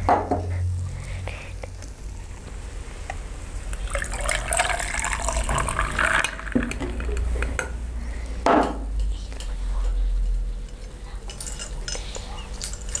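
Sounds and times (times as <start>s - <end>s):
tea pouring over ice: 3.7s - 6.8s.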